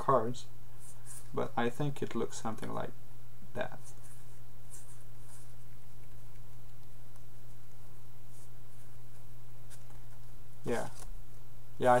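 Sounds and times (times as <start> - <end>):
low electrical hum: 0.0 - 12.0
playing cards rustling: 9.1 - 11.2.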